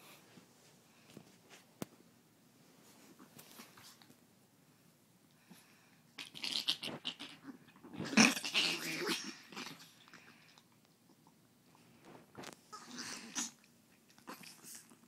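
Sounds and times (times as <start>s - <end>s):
small dogs growling: 6.2s - 11.4s, 12.7s - 15.0s.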